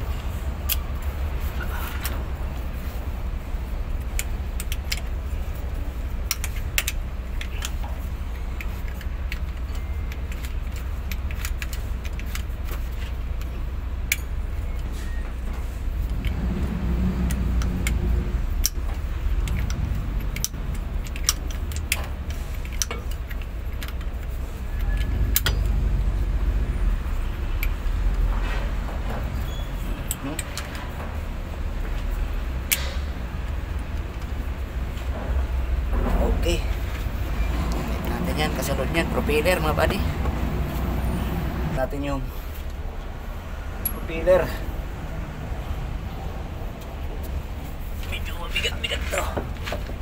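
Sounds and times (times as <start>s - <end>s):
wrench clicking on metal bolts: 4.0s - 14.8s, 17.2s - 25.8s, 32.6s - 33.2s.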